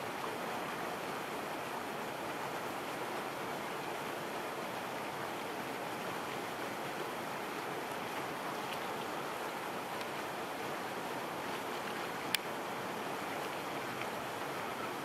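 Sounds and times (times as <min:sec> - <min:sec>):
small waves on water: 0:00.0 - 0:15.0.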